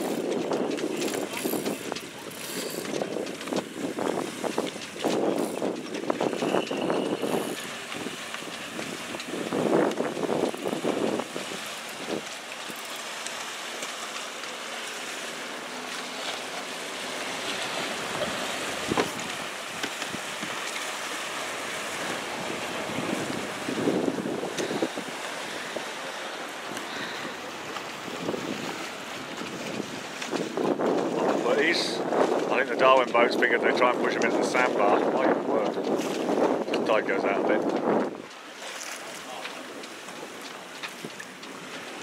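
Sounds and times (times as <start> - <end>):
wind buffeting microphone: 0.0 - 12.8, 17.5 - 20.6, 21.3 - 38.4
water lapping against boat hull: 0.0 - 42.0.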